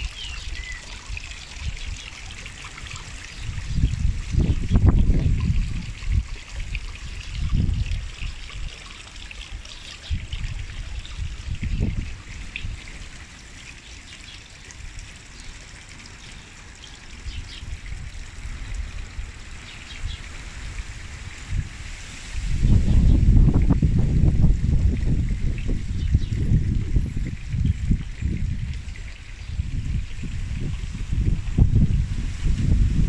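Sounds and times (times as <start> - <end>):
wind rustling through foliage: 0.0 - 33.0
wind buffeting microphone: 2.8 - 8.8, 9.5 - 12.9, 17.2 - 33.0.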